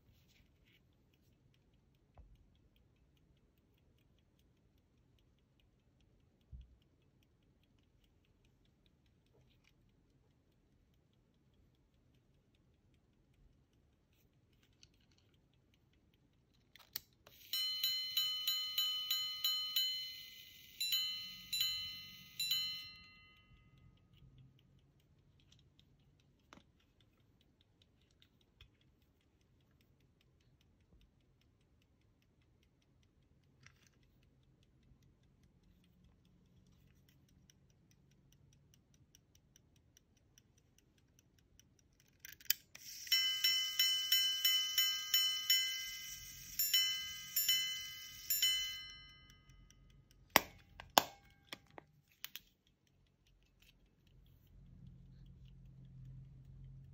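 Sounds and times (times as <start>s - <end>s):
pocket watch bright ringing strikes: 42.9s - 49.6s.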